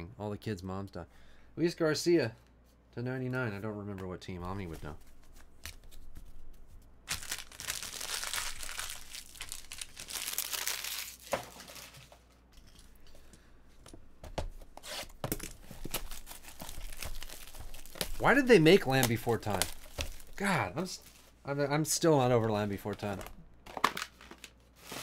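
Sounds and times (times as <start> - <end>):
plastic wrapping crinkling: 4.6 - 13.0, 14.9 - 21.4, 22.4 - 25.0.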